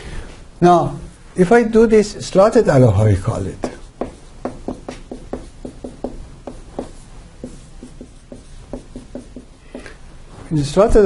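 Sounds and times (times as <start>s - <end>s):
marker on whiteboard: 3.4s - 10.0s.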